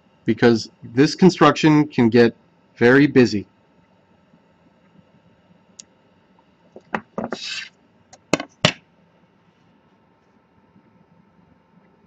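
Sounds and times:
ruler sliding scrape: 0:07.3 - 0:07.7.

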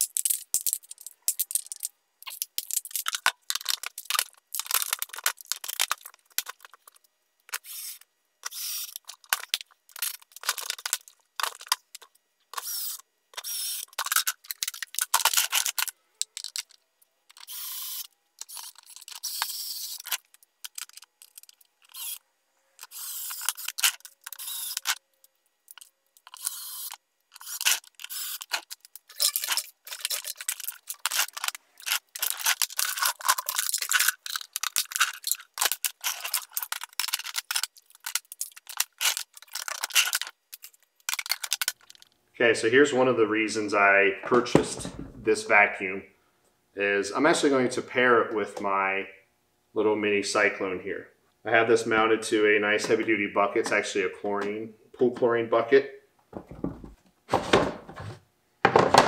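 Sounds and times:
plastic parts clicking and rattling: 0:00.0 - 0:22.2, 0:22.8 - 0:42.2
cordless drill driving screws: 0:12.6 - 0:13.9, 0:22.9 - 0:23.6, 0:24.4 - 0:24.9.

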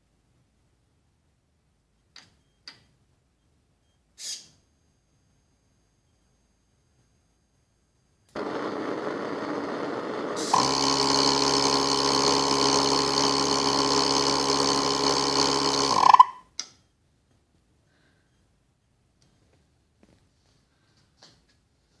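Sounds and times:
gas burners roaring: 0:08.3 - 0:16.3
gas hissing: 0:08.4 - 0:16.4.

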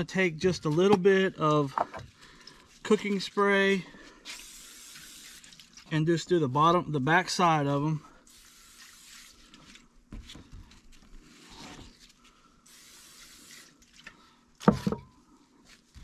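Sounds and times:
aerosol spray hissing: 0:12.7 - 0:13.6.

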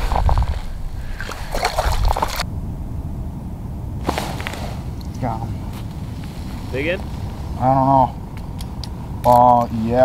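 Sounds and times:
wind rumble on microphone: 0:00.0 - 0:10.0
fish splashing water: 0:01.1 - 0:02.4.

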